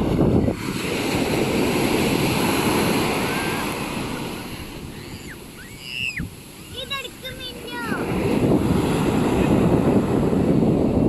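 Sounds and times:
waves breaking on beach: 0:00.0 - 0:11.0.

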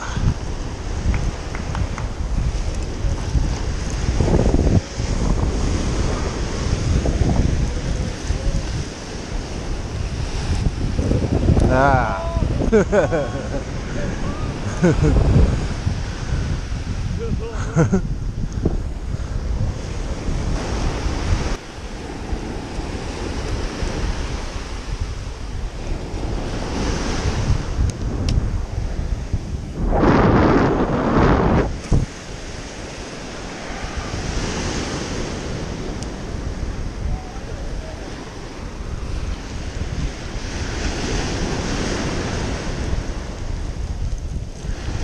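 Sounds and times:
surf breaking on beach: 0:00.0 - 0:45.0
wind buffeting microphone: 0:00.0 - 0:45.0.

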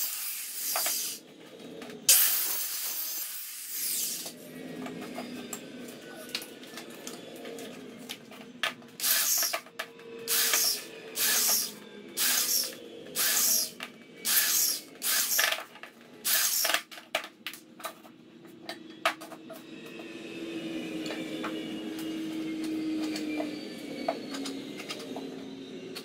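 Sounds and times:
electric drill into wood: 0:00.0 - 0:01.2, 0:02.1 - 0:04.3, 0:09.0 - 0:09.6, 0:10.3 - 0:15.5, 0:16.2 - 0:16.8.

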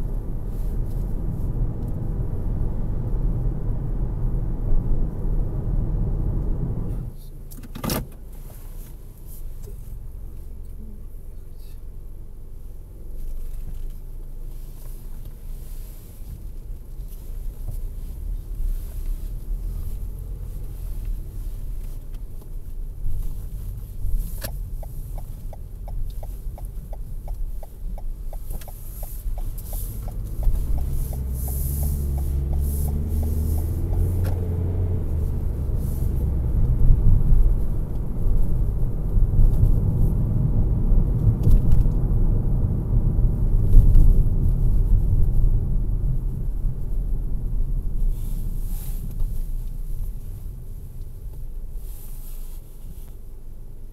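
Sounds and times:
car engine accelerating: 0:00.0 - 0:07.2, 0:12.1 - 0:53.0
engine and tyre rumble: 0:00.0 - 0:53.9
turn signal ticking: 0:16.3 - 0:51.6.

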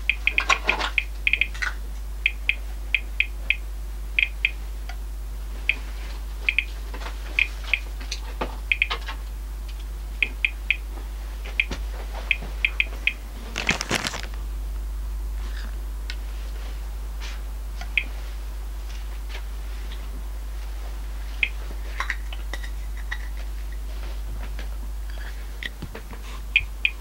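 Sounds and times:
meter chirps: 0:04.2 - 0:04.6
plastic bag rustling: 0:13.4 - 0:14.4.

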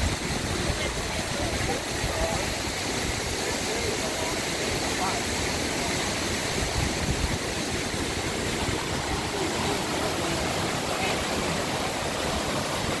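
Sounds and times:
waterfall and creek rushing: 0:00.0 - 0:13.0.

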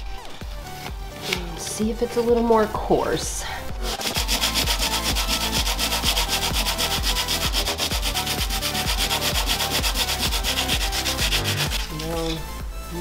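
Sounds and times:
sandpaper rubbing on wood: 0:03.8 - 0:12.3.

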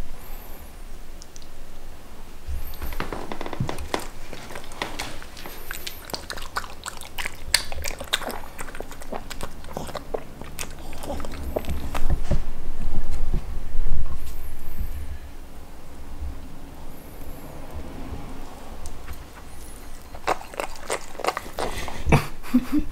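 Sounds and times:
dog chewing food: 0:02.6 - 0:13.3, 0:18.8 - 0:22.2.

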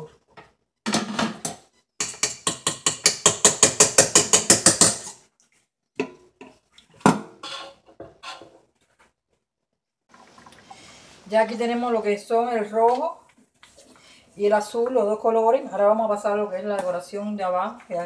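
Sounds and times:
spatula scraping mixing bowl: 0:07.4 - 0:08.5.

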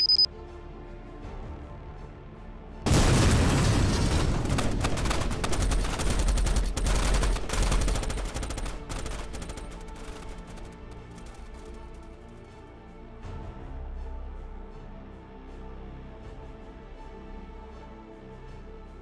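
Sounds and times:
rapid gunfire: 0:03.2 - 0:12.0
faint music: 0:05.0 - 0:19.0.

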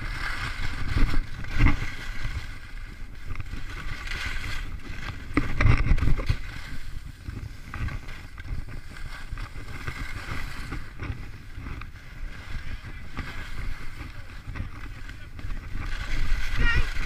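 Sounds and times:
skis scraping over packed snow: 0:00.0 - 0:17.0
wind rumble on microphone: 0:00.0 - 0:17.0.

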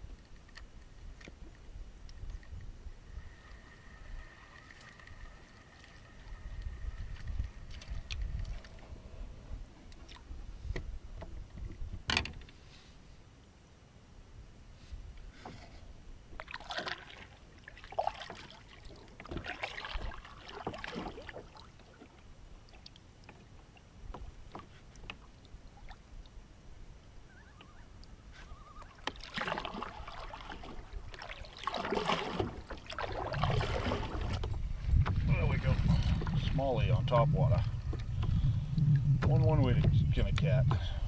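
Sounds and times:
kayak paddle splashing water: 0:03.0 - 0:09.0, 0:16.3 - 0:26.1, 0:28.8 - 0:36.6.

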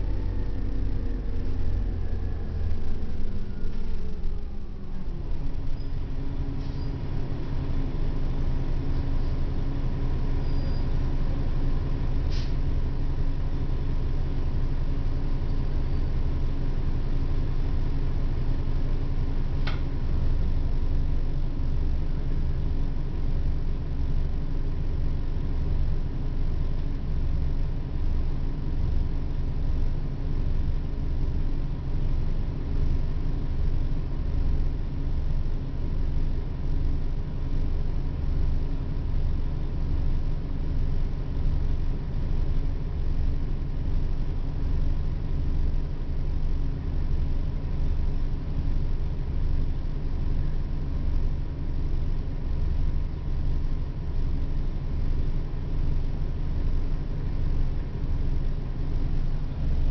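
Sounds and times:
bus engine humming: 0:00.0 - 0:26.9, 0:59.2 - 0:59.9.

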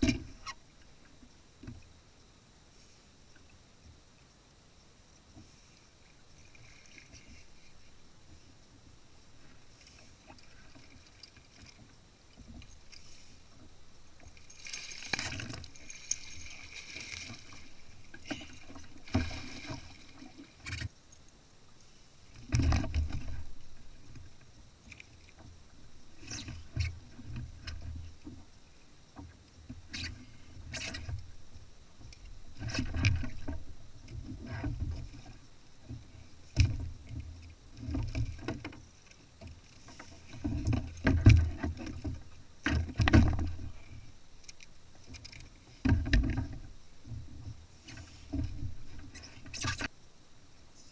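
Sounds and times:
fishing gear knocks and clicks: 0:14.2 - 0:17.5.

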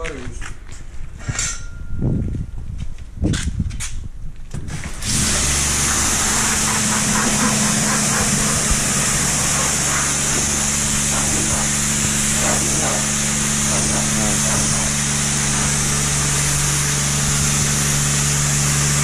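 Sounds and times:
pump motor hum: 0:04.7 - 0:19.0
water jet hissing: 0:05.0 - 0:19.0.

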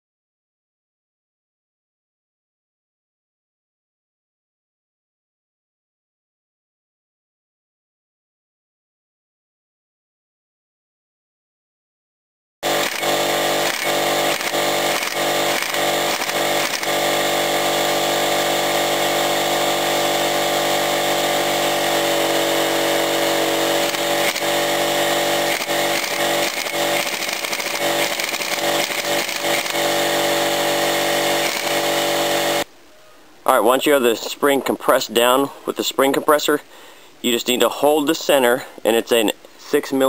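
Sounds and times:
pneumatic wrench running: 0:12.6 - 0:32.7.

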